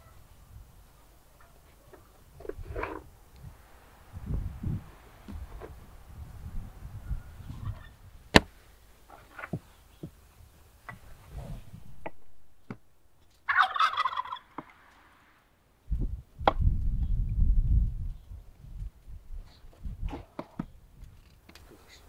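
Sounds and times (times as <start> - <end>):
turkey gobbling: 13.4 - 15.0.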